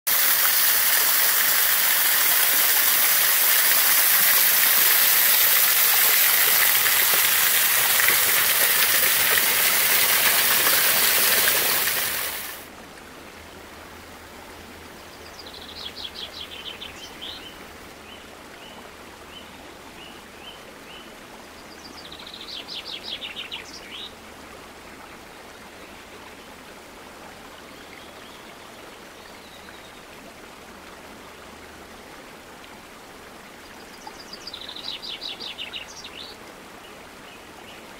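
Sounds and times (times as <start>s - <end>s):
waterfall rushing: 0.1s - 12.7s.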